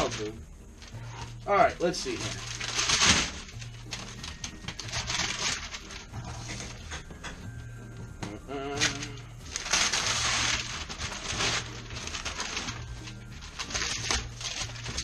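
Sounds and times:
wrapping paper tearing: 1.9 - 6.8, 8.7 - 15.0.

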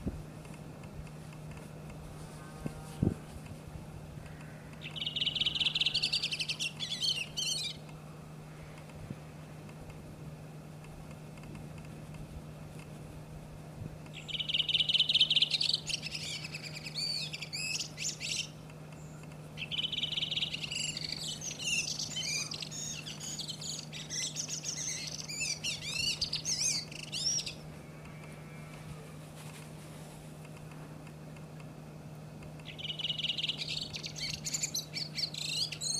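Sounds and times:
bird singing: 4.2 - 8.9, 14.1 - 29.0, 32.6 - 35.9.

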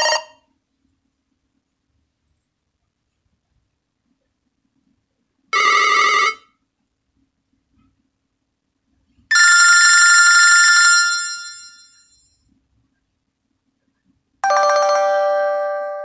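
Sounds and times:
phone ringing tone: 0.0 - 0.4, 5.6 - 6.5, 9.3 - 12.2, 14.4 - 16.0.

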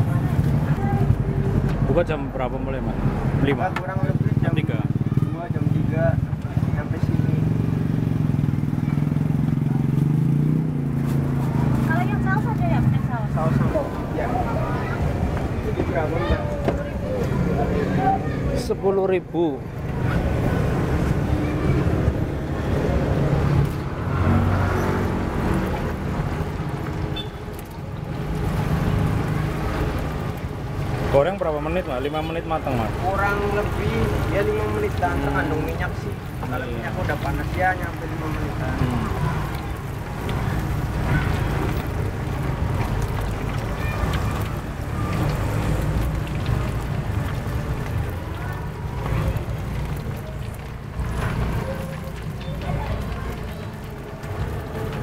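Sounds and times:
traffic rumble: 0.0 - 55.0
food sizzling in hot oil: 19.5 - 55.0.

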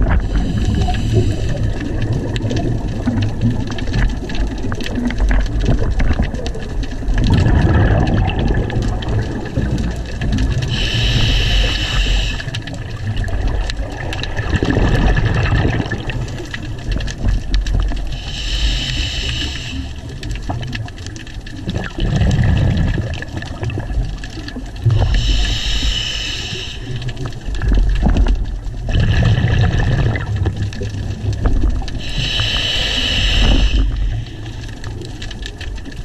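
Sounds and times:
bubbling exhales: 0.0 - 21.0, 21.6 - 36.0
sharp crackling clicks: 0.0 - 36.0
hissing regulator inhale: 0.2 - 1.8, 10.6 - 12.8, 18.1 - 20.2, 25.0 - 27.1, 32.0 - 34.9.

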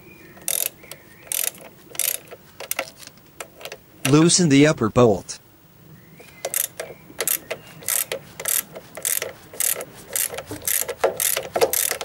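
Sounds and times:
ratchet wrench clicking: 0.4 - 3.8, 6.4 - 12.0.

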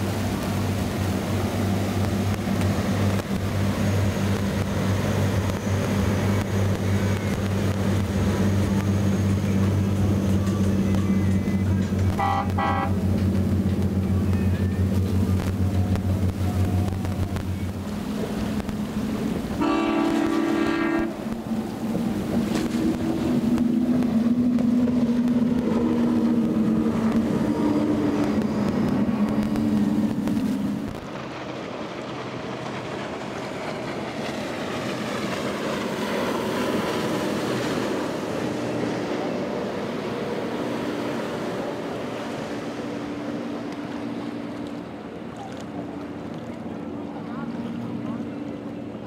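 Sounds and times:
motorboat engines droning: 0.0 - 49.0
spray and waves hissing: 0.0 - 49.0.

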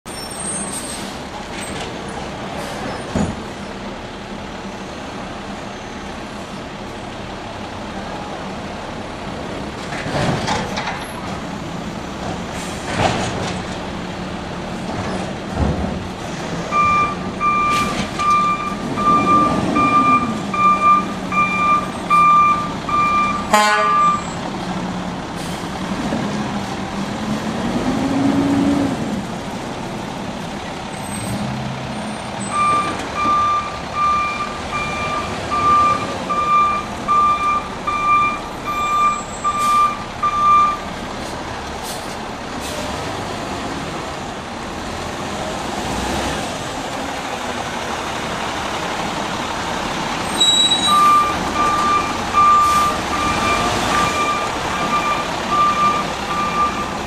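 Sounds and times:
refuse truck engine humming: 0.1 - 10.1, 10.7 - 57.0
reversing beeper: 16.7 - 24.4, 32.4 - 40.9, 50.2 - 57.0.

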